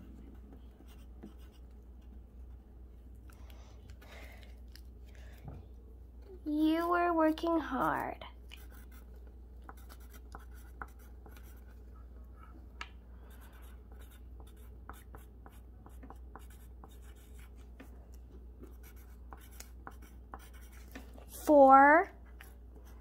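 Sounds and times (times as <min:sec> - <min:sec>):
steady low hum: 0:00.0 - 0:23.0
pencil scratching on paper: 0:00.1 - 0:01.6, 0:07.6 - 0:09.1, 0:09.7 - 0:11.8, 0:13.3 - 0:17.6, 0:18.6 - 0:21.0.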